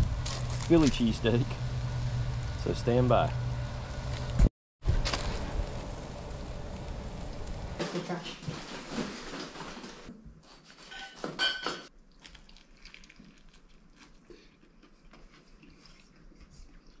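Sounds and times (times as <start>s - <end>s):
biting and chewing: 12.1s - 17.0s.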